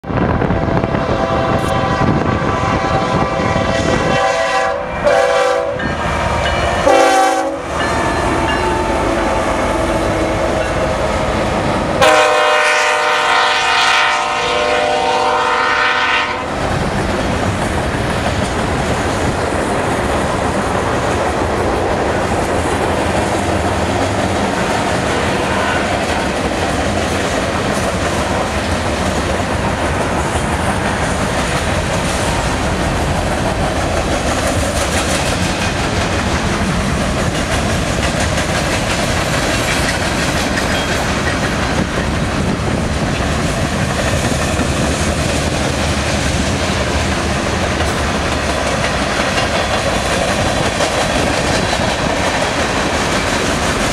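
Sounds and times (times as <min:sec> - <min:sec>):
wind noise on microphone: 0:00.0 - 0:06.9, 0:13.2 - 0:53.9
train air horn blasts: 0:00.4 - 0:11.2, 0:12.0 - 0:16.6, 0:25.2 - 0:26.2
train wheels clicking over rail joints: 0:16.5 - 0:53.9.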